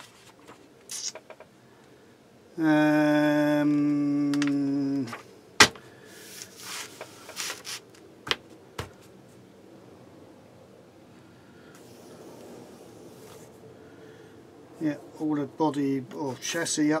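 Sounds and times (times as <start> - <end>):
paper rustling: 0.0 - 0.7, 6.2 - 8.0.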